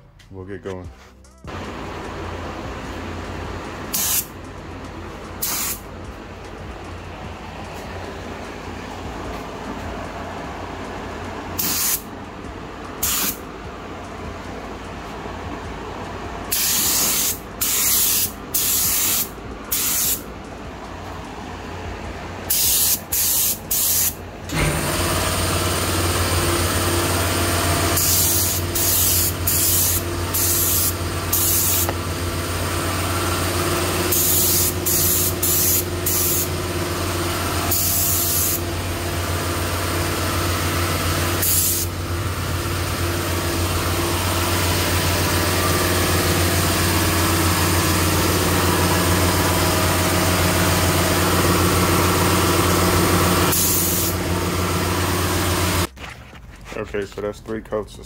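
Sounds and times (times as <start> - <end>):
air compressor humming: 0.7 - 56.0
spray gun hissing bursts: 3.9 - 4.3, 5.4 - 5.8, 11.6 - 12.1, 13.0 - 13.4, 16.5 - 20.2, 22.5 - 24.2, 28.0 - 32.0, 34.0 - 36.6, 37.7 - 38.6, 41.3 - 42.0, 53.5 - 54.3.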